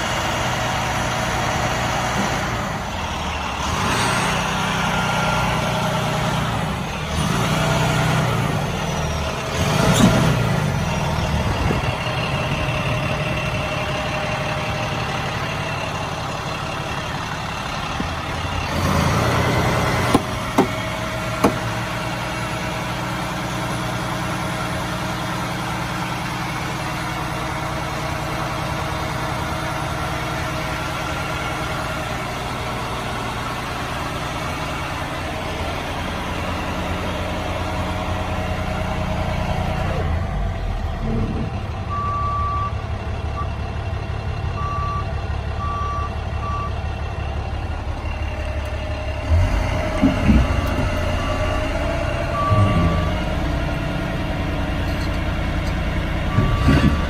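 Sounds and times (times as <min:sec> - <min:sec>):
diesel truck engine idling: 0:00.0 - 0:57.0
knocks: 0:21.4 - 0:21.6.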